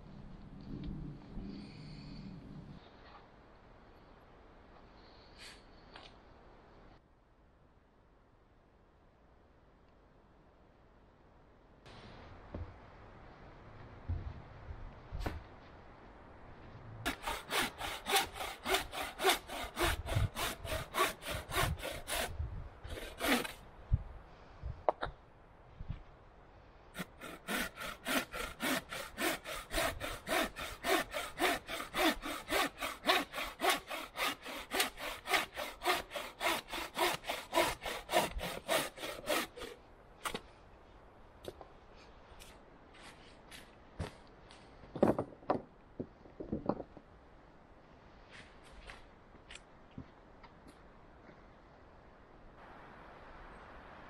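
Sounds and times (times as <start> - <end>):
hand saw cutting log: 17.1 - 23.6, 27.0 - 40.4.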